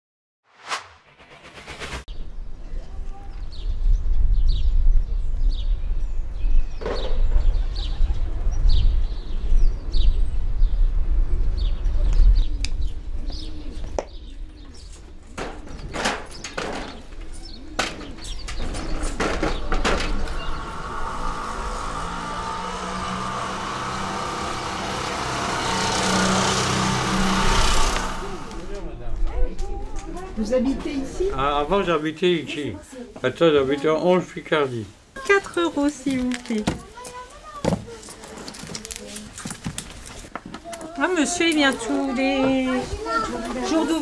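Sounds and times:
low rumble: 0.5s - 2.7s
birds chirping: 11.5s - 29.0s.

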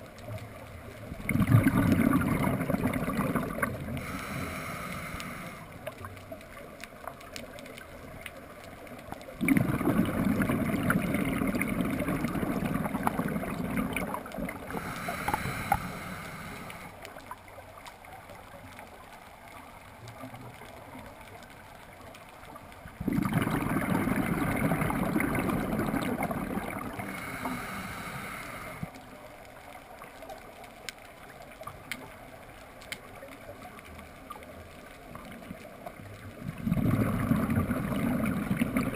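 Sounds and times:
underwater exhaled bubbles rushing: 1.0s - 6.7s, 9.0s - 17.3s, 22.8s - 28.9s, 35.0s - 38.9s.

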